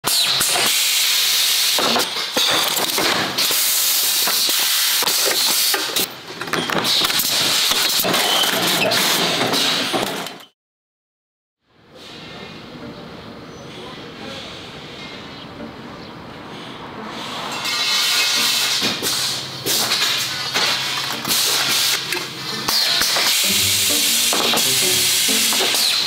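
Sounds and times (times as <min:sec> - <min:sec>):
steady high hiss: 0:23.4 - 0:26.0.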